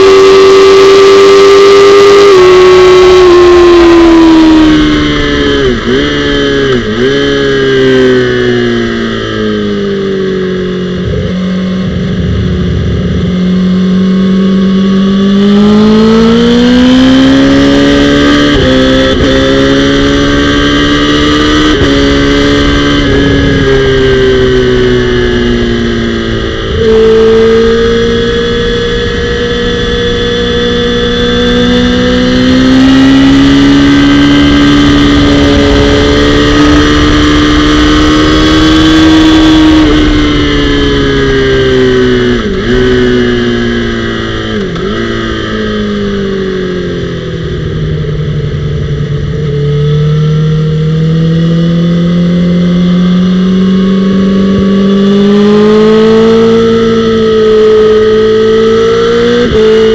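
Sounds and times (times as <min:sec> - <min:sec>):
motorcycle engine at speed: 0:00.0 - 0:59.9
wind rushing: 0:10.9 - 0:14.7.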